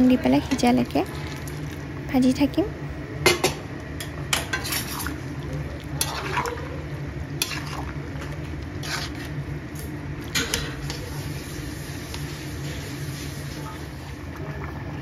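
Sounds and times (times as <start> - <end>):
steady low hum: 0.0 - 15.0
metal spatula scraping a pan: 7.4 - 7.9, 8.8 - 9.4.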